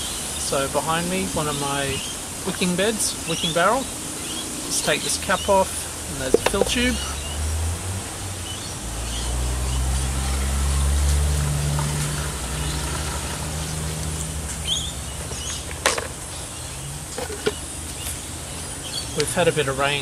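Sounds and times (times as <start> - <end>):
bird chirping: 14.6 - 19.4.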